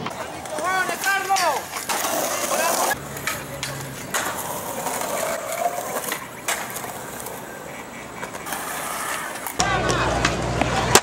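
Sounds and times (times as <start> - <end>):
skateboard clacks: 0.0 - 11.0
skateboard wheels rolling on concrete: 0.0 - 11.0.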